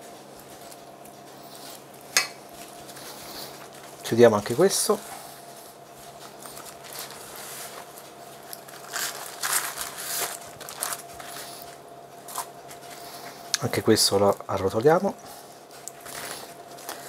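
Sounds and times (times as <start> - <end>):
baking paper rustling: 0.0 - 17.0.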